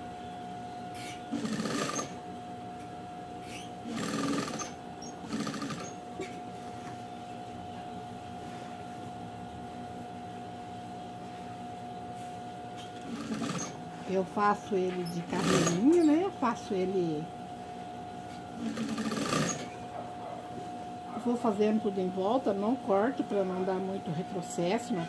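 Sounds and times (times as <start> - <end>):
steady hum: 0.0 - 25.0
sewing machine stitching: 1.4 - 2.2, 3.9 - 6.0, 13.0 - 13.8, 15.3 - 15.9, 18.6 - 19.7.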